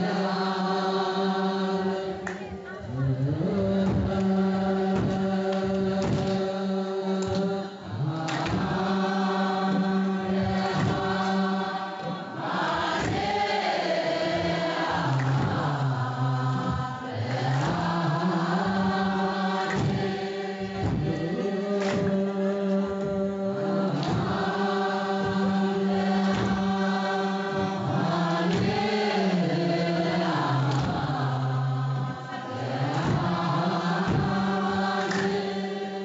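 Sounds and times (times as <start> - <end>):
group chanting in long notes: 0.0 - 36.0
regular beat: 7.3 - 36.0.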